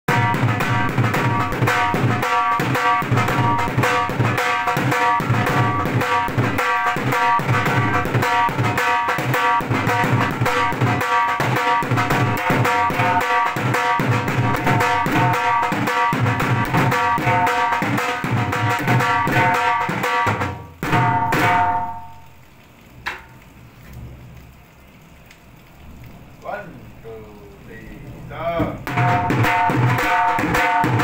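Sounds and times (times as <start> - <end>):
dhol drums playing: 0.1 - 22.2, 28.6 - 31.0.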